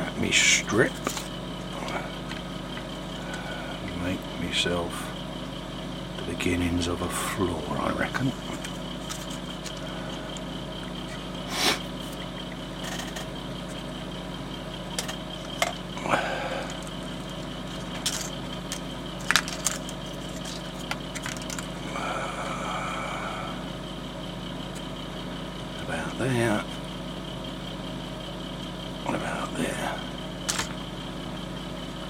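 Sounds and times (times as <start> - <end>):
low hum: 0.0 - 32.0
plastic card scraping: 0.9 - 1.3, 8.5 - 9.8, 17.7 - 21.7.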